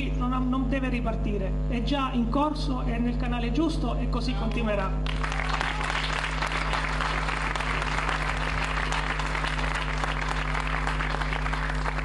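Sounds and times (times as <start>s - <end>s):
electrical mains hum: 0.0s - 12.0s
crowd applauding: 5.0s - 12.0s.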